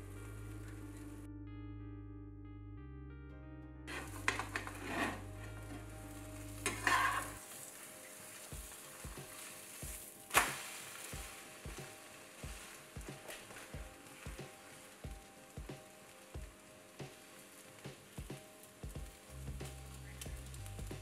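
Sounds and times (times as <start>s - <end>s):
metal spatula scraping a pan: 3.9s - 5.9s, 6.5s - 10.1s
bread sizzling in a frying pan: 3.9s - 21.0s
faint background music with beat: 3.9s - 21.0s.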